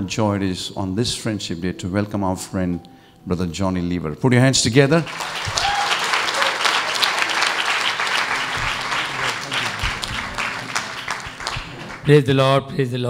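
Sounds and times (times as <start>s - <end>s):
audience applauding: 5.0s - 12.3s.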